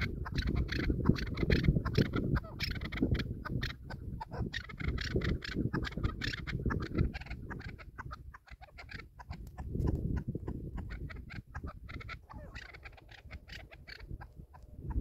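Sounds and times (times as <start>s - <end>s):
partridge calling: 0.0s - 15.0s
wind on microphone: 0.0s - 15.0s.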